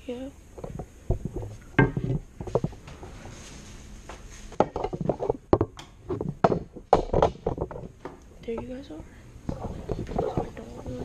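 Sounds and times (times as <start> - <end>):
hockey gear knocking and rattling: 4.6 - 8.2.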